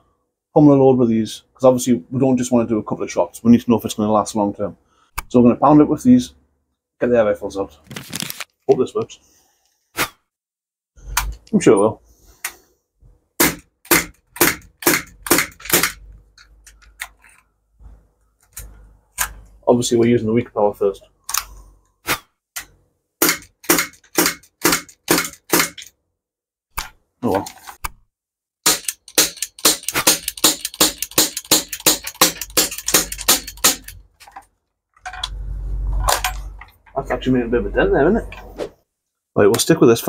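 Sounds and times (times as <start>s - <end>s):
air pistol shots: 13.4s - 16.0s, 23.2s - 25.8s, 28.6s - 33.9s.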